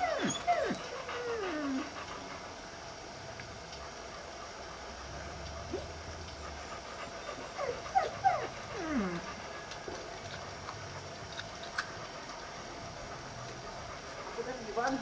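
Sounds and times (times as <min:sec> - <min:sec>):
dog whimpering: 0:00.0 - 0:02.3, 0:07.2 - 0:09.4.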